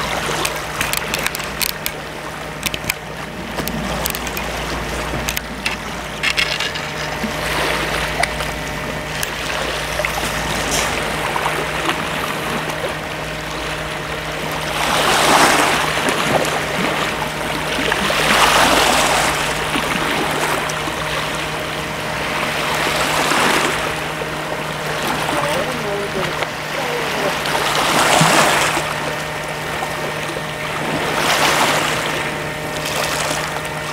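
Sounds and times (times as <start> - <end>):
waves washing against rocky shore: 0.0 - 33.9.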